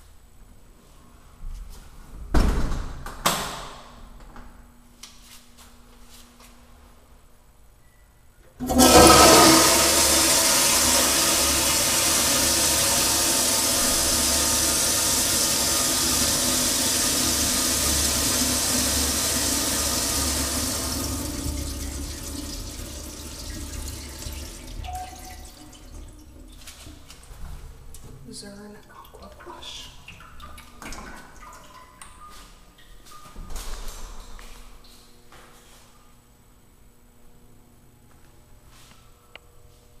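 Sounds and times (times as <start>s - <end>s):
toilet flushing: 8.6s - 27.5s.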